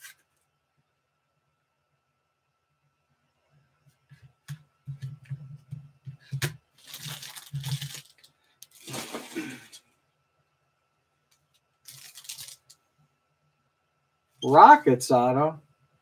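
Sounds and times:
foil wrappers crinkling: 0:06.3 - 0:09.7, 0:11.8 - 0:12.8.

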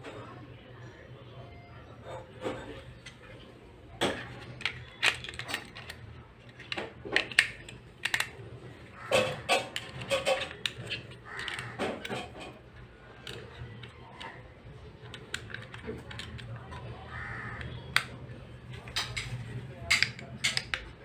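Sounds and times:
plastic remote clicks and taps: 0:04.1 - 0:08.3, 0:09.1 - 0:12.2, 0:15.0 - 0:16.9, 0:17.5 - 0:18.2.

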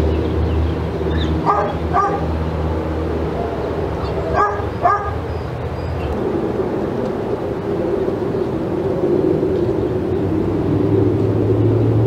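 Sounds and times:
steady low hum: 0:00.0 - 0:12.0
dog barks: 0:01.4 - 0:02.3, 0:04.1 - 0:05.3.

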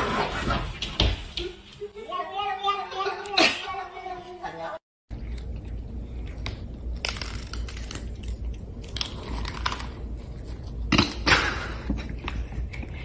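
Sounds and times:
cats crunching dry kibble: 0:05.1 - 0:10.8.

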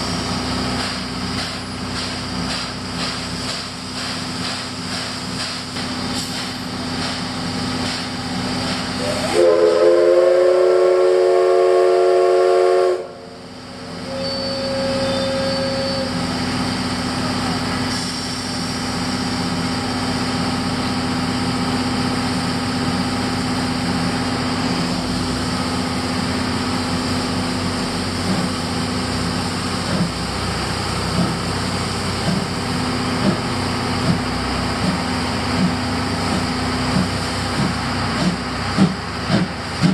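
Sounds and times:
train running: 0:00.0 - 0:39.9
steam locomotive whistle: 0:09.0 - 0:13.4, 0:14.0 - 0:16.2.

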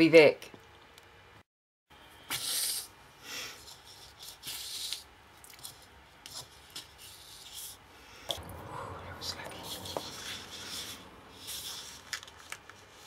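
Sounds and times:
cardstock rubbing and rustling: 0:09.6 - 0:13.0.

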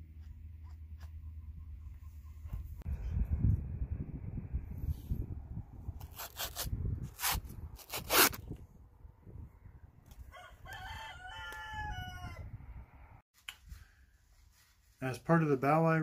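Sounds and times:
low rumble: 0:02.7 - 0:05.9
rooster crowing: 0:10.2 - 0:12.6.

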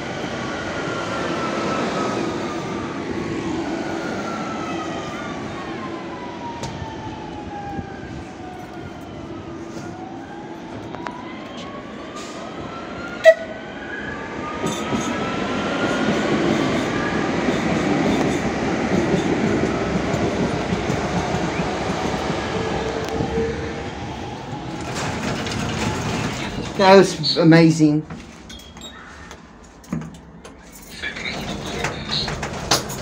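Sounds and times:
train rumble: 0:14.4 - 0:33.0.

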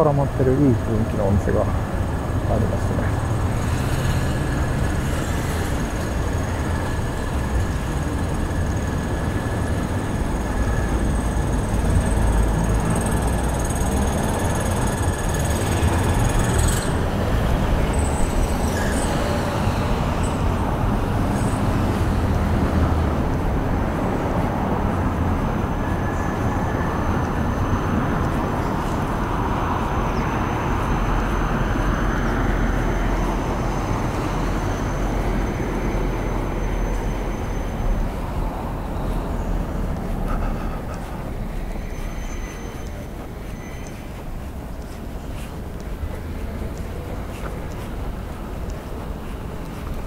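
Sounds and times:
road traffic roar: 0:00.0 - 0:50.0.

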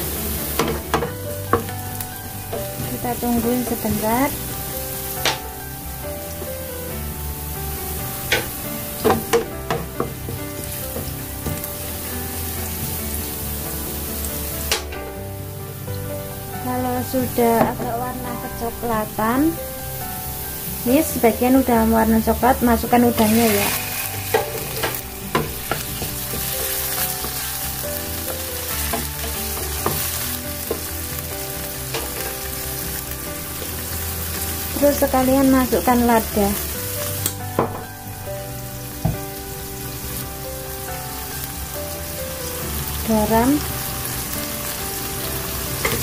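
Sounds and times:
garlic sizzling in hot oil: 0:00.0 - 0:46.0
wooden spatula tapping a pan: 0:00.5 - 0:03.8, 0:08.3 - 0:11.8, 0:23.7 - 0:27.6
wooden spatula scraping a pan: 0:22.8 - 0:35.1.

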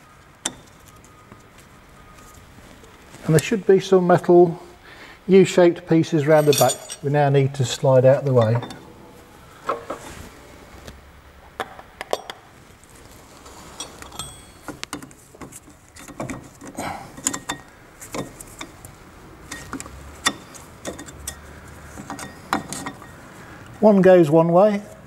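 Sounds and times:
light metallic clicks and clinks: 0:06.3 - 0:07.2, 0:13.7 - 0:15.1, 0:17.1 - 0:18.8, 0:19.4 - 0:23.2.

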